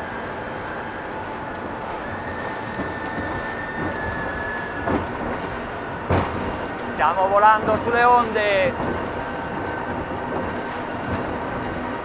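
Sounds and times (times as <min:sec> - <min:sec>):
outboard engines roaring: 0:00.0 - 0:12.0
thin steady whine: 0:00.0 - 0:12.0
wind and water rushing: 0:00.0 - 0:12.0
thump: 0:06.1 - 0:06.5.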